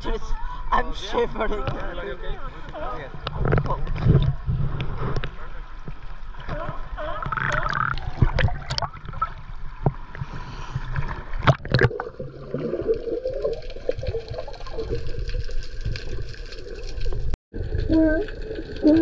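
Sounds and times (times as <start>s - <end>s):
water splashing and sloshing: 2.9s - 19.0s
muffled underwater bubbling: 6.4s - 9.5s.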